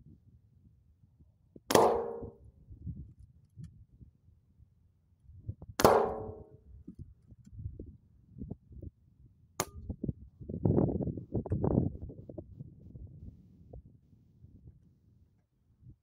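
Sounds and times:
sharp crack: 1.7s - 2.3s, 5.8s - 6.4s
bullet striking metal dish: 1.7s - 2.4s, 5.8s - 6.5s.

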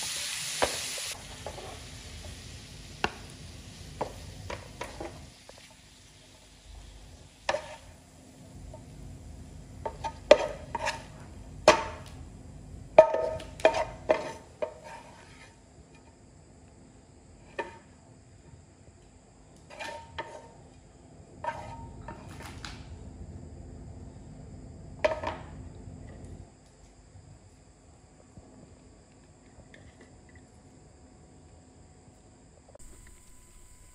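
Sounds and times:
spatula scraping a frying pan: 7.4s - 8.0s, 9.8s - 11.3s, 13.0s - 15.6s, 19.6s - 20.6s, 21.4s - 22.3s.

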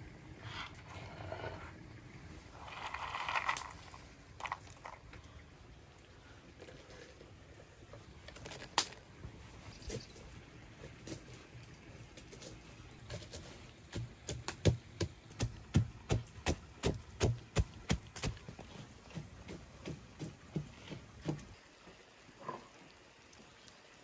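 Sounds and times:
wooden pestle pounding in mortar: 14.3s - 18.4s.

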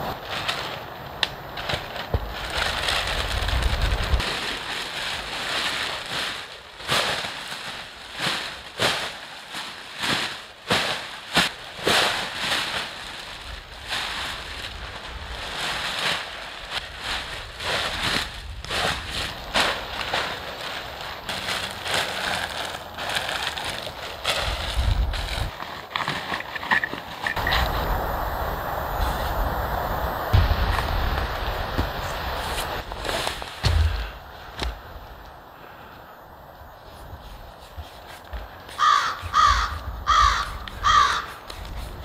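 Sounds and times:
plastic sheeting crinkling: 0.0s - 27.7s, 30.3s - 35.8s.

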